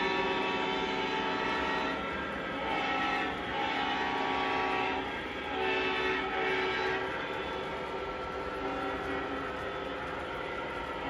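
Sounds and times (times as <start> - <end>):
model train horn sound: 0.0 - 7.6, 8.6 - 9.5.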